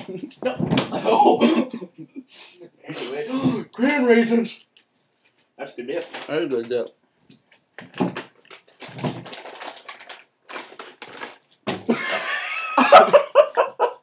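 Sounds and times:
young men laughing: 0.0 - 2.3, 11.9 - 14.0.

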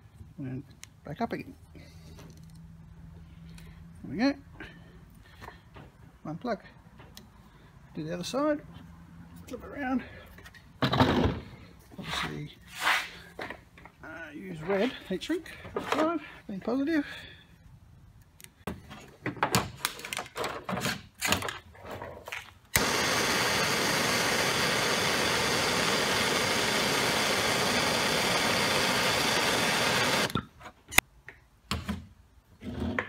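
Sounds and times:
gas torch hissing: 22.8 - 30.4.

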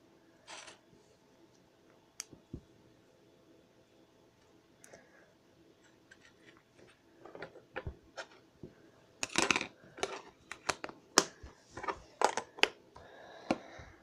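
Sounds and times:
plastic tubs clicking and knocking: 9.2 - 12.8.

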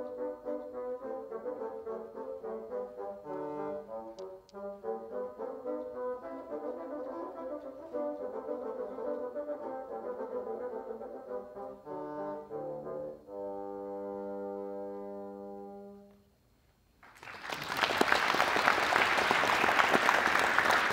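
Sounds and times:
bassoon duet: 0.0 - 16.2
audience applause: 17.0 - 20.9.

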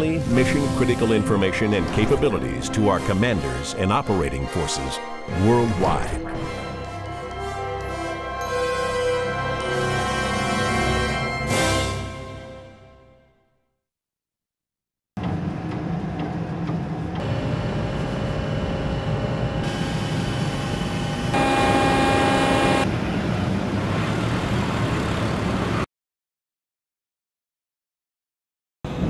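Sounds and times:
machinery rumbling and whining: 15.2 - 25.8.

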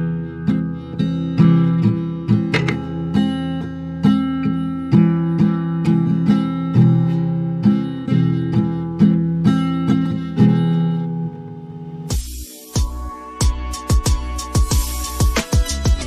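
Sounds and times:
acoustic guitar strumming: 0.0 - 12.8.

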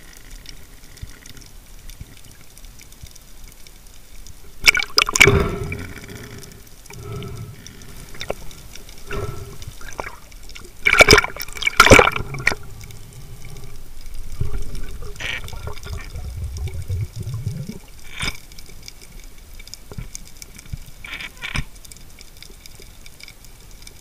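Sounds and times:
water rushing underwater: 3.8 - 20.6.

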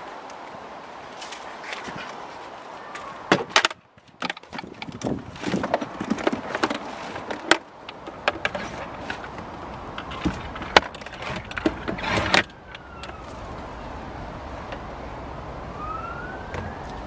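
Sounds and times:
plastic and metal clicks and knocks: 3.3 - 13.2
rustling clatter: 3.3 - 13.5.

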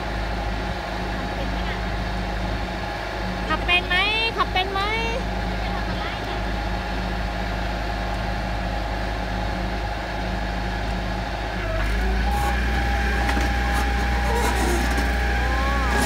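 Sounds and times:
excavator diesel engine running: 0.0 - 16.0
steady high whine: 8.0 - 16.0
bucket digging into soil: 12.3 - 16.0.

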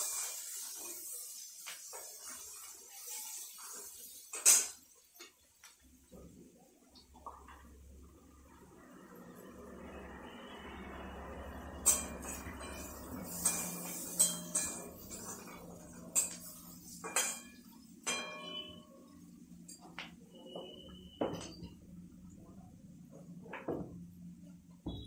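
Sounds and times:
metal utensils clinking on pan: 3.7 - 5.3, 11.8 - 18.8.

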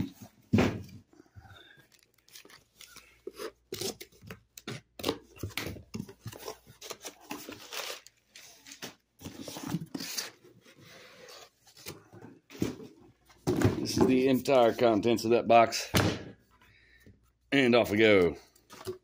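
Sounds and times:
cardboard and paper rustling: 0.0 - 14.9.

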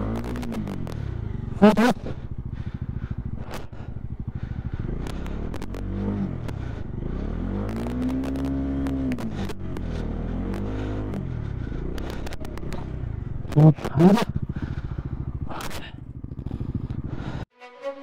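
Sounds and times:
motorcycle engine revving: 0.0 - 17.5
clicks and crackles: 0.1 - 1.1, 5.0 - 6.6, 7.7 - 9.9, 11.9 - 14.0.

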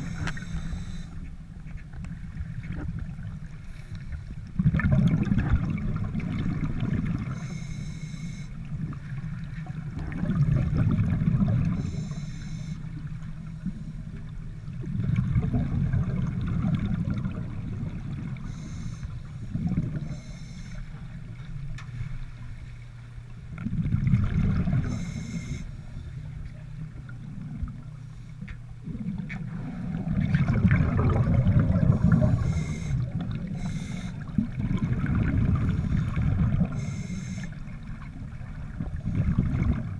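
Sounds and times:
underwater breath bubbling: 0.0 - 1.2, 3.6 - 8.6, 10.0 - 12.9, 14.9 - 21.1, 23.7 - 26.2, 27.9 - 39.9
faint hiss: 35.6 - 37.6.

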